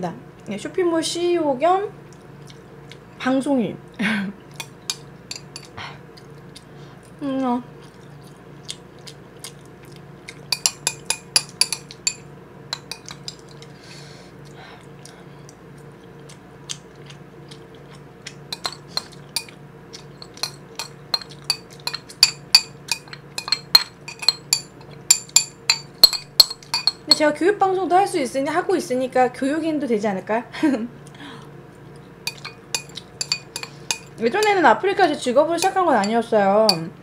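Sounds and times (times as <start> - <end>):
metal spoon clinking on ceramic bowl: 4.6 - 5.7, 10.5 - 13.6, 18.5 - 19.6, 20.2 - 27.2, 32.3 - 34.6, 35.6 - 36.9.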